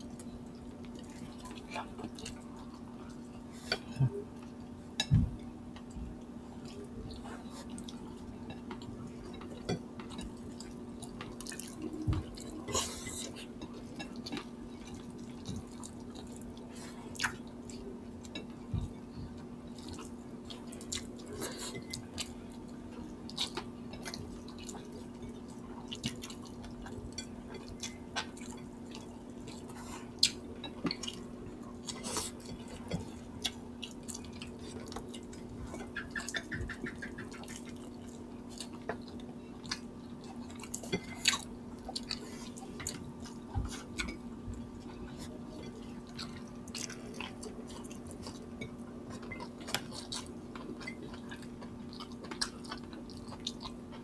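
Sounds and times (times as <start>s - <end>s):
steady low hum: 0.0s - 54.0s
wet chewing and lip smacks: 31.9s - 44.2s.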